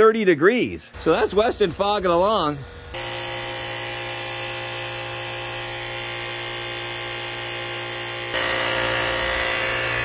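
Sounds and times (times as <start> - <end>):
pump motor hum: 1.0 - 10.0.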